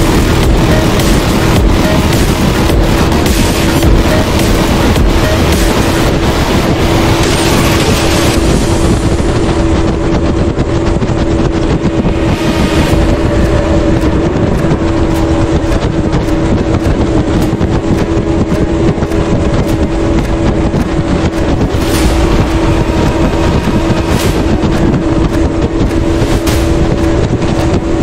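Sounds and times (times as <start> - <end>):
motorboat engine hum: 0.0 - 28.0
wind on microphone: 0.0 - 28.0.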